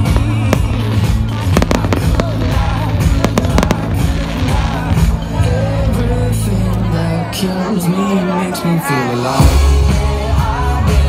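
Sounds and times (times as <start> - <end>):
fireworks bangs and crackles: 0.0 - 5.7
music with low bass: 0.0 - 7.8, 9.3 - 11.0.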